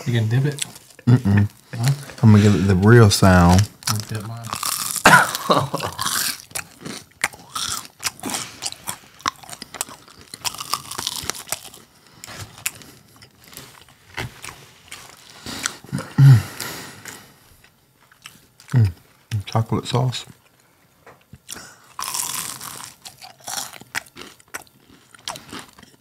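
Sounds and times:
crunchy food being chewed: 3.5s - 16.0s, 17.0s - 19.0s, 20.3s - 26.0s.

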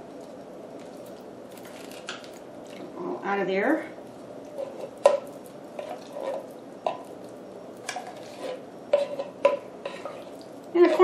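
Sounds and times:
spoon scraping beans from tin: 4.5s - 7.2s, 7.8s - 11.0s.

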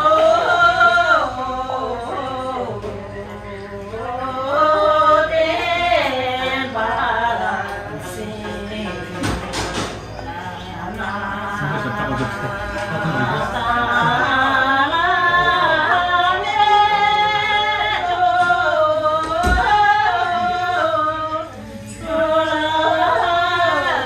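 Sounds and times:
singing with held wavering notes: 10.0s - 24.0s.

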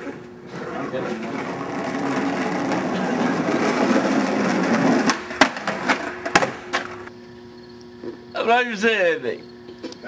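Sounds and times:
skateboard wheels rolling on pavement: 0.0s - 7.1s
skateboard clacking on curb: 1.1s - 7.1s.

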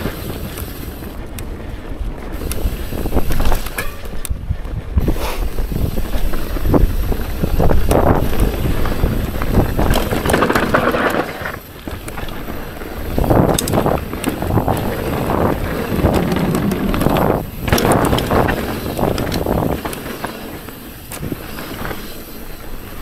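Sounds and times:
bike clicks and rattles: 0.0s - 23.0s
wind buffeting microphone: 0.0s - 23.0s
tyres rumbling on dirt: 4.9s - 23.0s.

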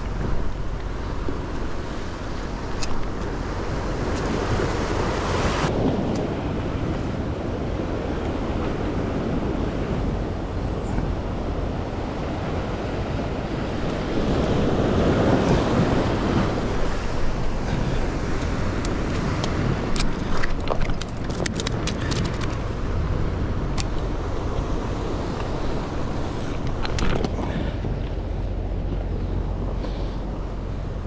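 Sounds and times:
sea surf on rocks: 0.0s - 31.0s
wind buffeting microphone: 0.0s - 31.0s.

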